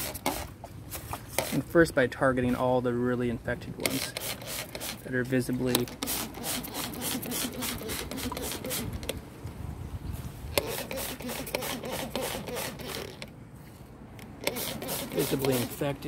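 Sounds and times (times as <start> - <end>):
spray bottle hissing: 6.0 - 9.0, 14.4 - 15.8.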